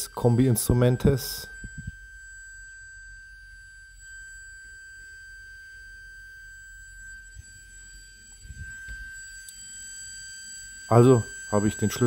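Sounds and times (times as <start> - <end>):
high-pitched warning tone: 0.0 - 12.0.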